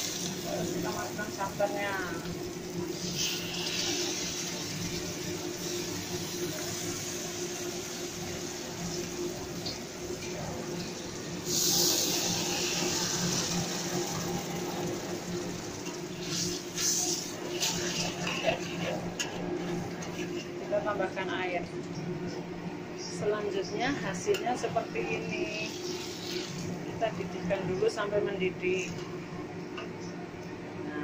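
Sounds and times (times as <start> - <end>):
liquid sizzling in a wok: 0.0 - 20.6, 25.4 - 27.0.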